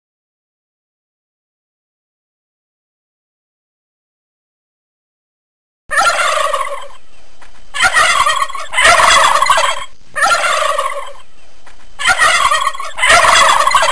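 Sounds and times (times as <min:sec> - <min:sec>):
turkey gobbling: 0:05.9 - 0:11.3, 0:12.0 - 0:13.9.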